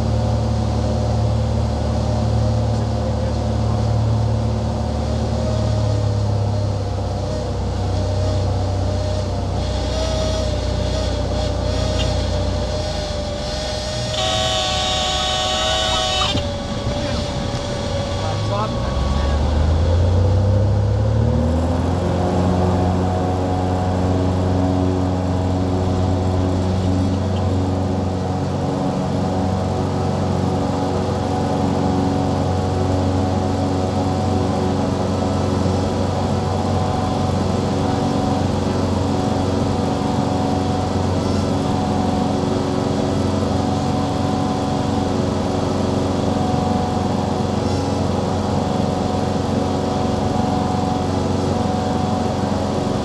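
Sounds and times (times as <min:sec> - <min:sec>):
airplane piston engine and propeller: 0:00.0 - 0:53.0.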